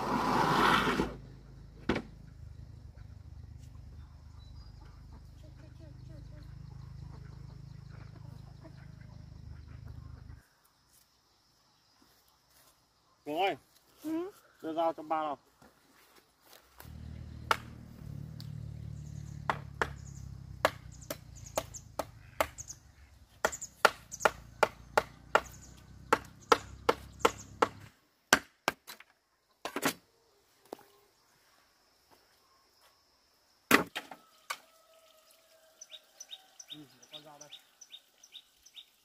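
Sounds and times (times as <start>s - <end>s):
knife chopping: 20.6s - 22.6s.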